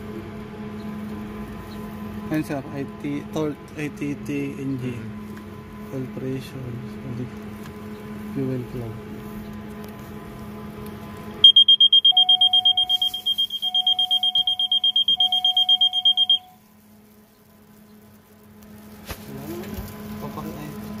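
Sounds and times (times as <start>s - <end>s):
fast pulsing high beep: 11.4s - 16.6s
lower long beeps: 11.4s - 16.7s.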